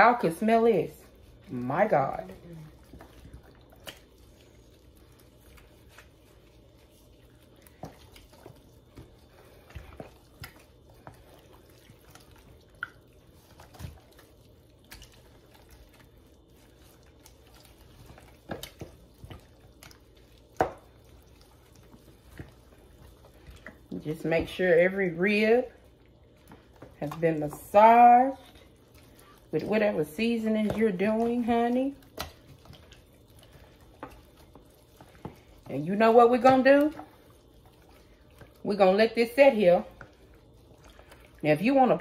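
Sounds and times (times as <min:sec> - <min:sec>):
wet squelches of meat massaged: 0:00.0 - 0:42.0.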